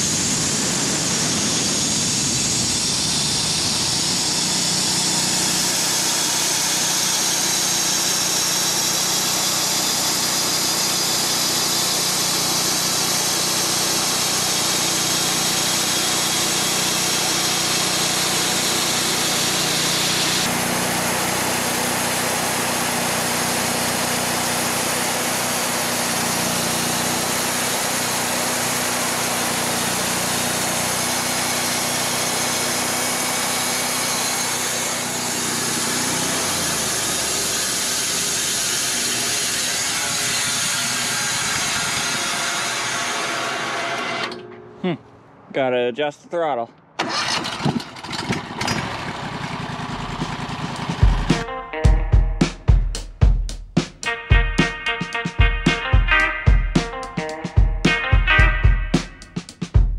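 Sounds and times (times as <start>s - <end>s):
sawmill gas engine running: 0.0s - 44.4s, 47.0s - 51.5s
band blade cutting log: 4.0s - 44.4s.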